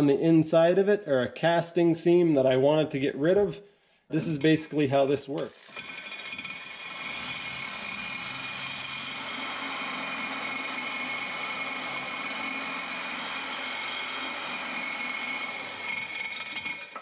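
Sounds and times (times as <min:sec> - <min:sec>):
electric drill sanding metal: 0:05.5 - 0:17.0.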